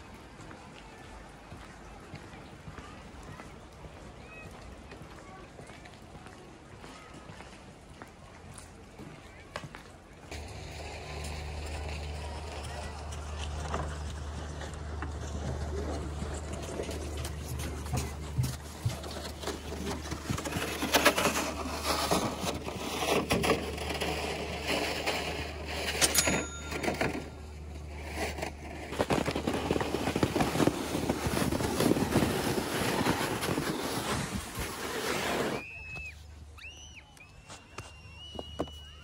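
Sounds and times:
sled knocking and rattling: 10.3 - 35.6
sled scraping over snow: 10.3 - 39.0.

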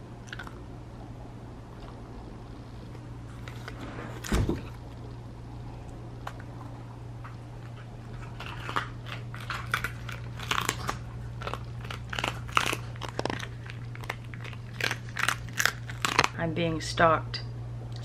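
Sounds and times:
dog crunching a treat: 0.2 - 0.7, 2.8 - 5.2, 5.9 - 16.4.

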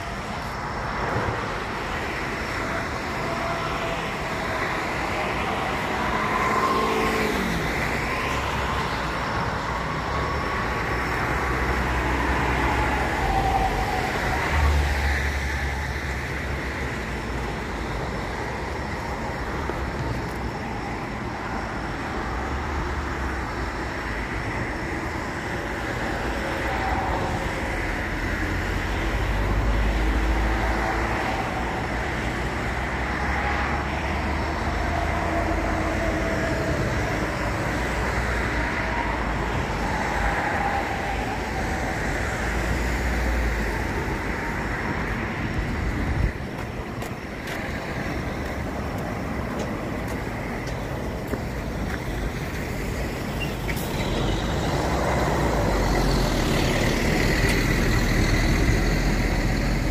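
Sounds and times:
cars passing on road: 0.0 - 59.9
low traffic rumble: 0.0 - 59.9.

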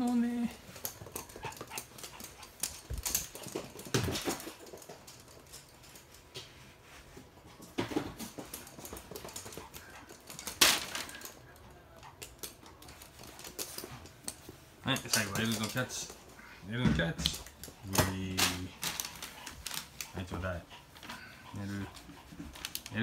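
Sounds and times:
dog claws clicking on floor: 0.0 - 6.6, 7.4 - 16.3, 17.1 - 23.0.

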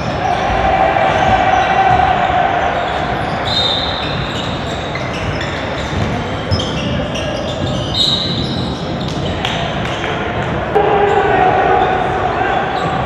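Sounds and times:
sneakers squeaking: 0.0 - 13.0
voices in a hall: 0.0 - 13.0
basketball bouncing on wooden floor: 2.9 - 9.4.

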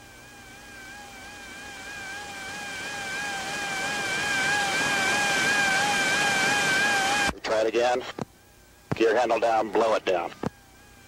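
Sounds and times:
radio hiss: 2.3 - 10.6.

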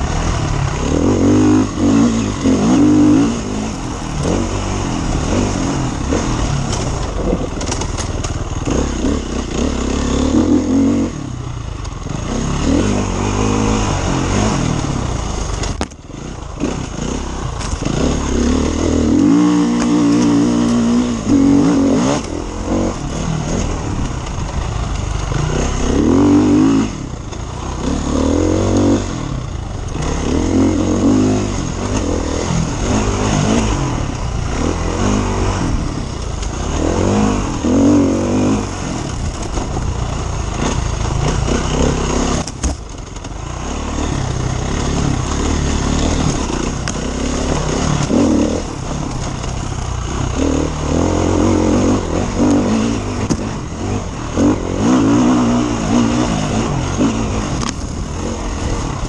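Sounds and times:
motorcycle engine revving: 0.0 - 59.0.

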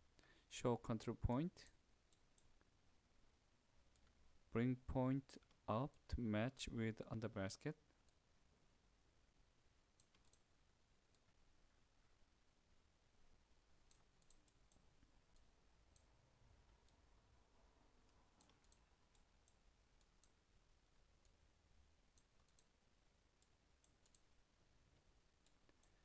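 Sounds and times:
computer mouse clicks: 3.9 - 4.2, 10.0 - 10.5, 13.8 - 16.1, 18.4 - 20.4, 22.1 - 22.8, 23.4 - 24.3, 25.4 - 26.0.

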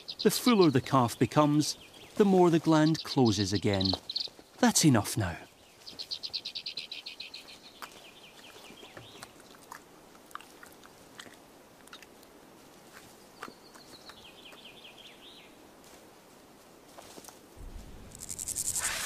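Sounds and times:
descending chirping call: 2.7 - 4.3.

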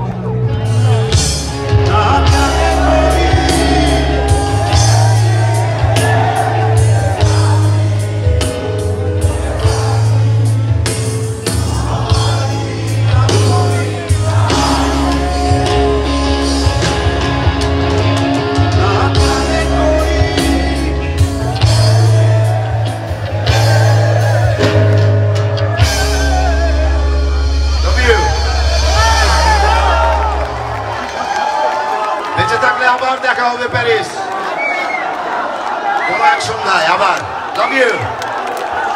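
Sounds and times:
live band with singer: 0.0 - 38.9.

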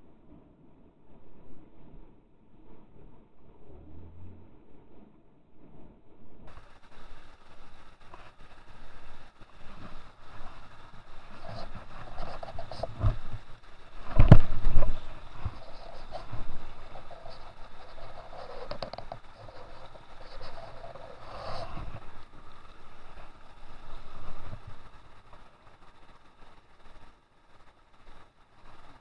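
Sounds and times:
stream water rushing over rocks: 6.5 - 29.0
microphone handling bumps: 14.0 - 16.6.

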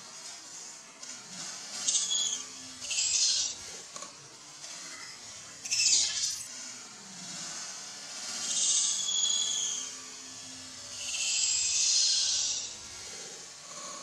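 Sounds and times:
macaques screeching: 1.9 - 3.6, 5.6 - 6.5, 8.4 - 9.8, 11.0 - 12.7.

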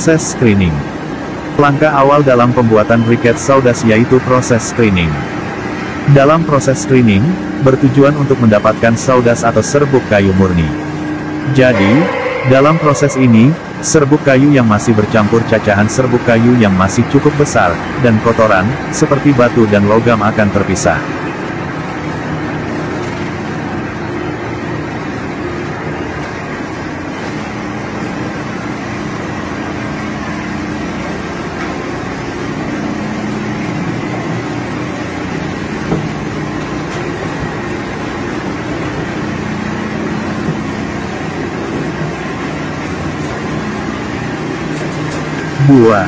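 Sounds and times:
screening machinery drone: 0.0 - 21.6.

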